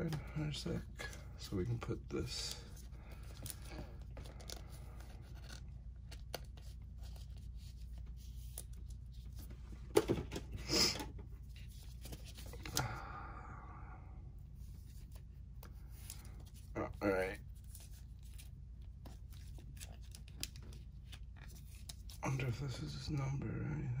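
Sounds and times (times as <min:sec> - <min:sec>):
steady low hum: 0:00.0 - 0:24.0
trading cards clicking and rustling: 0:02.2 - 0:13.0, 0:15.0 - 0:22.2.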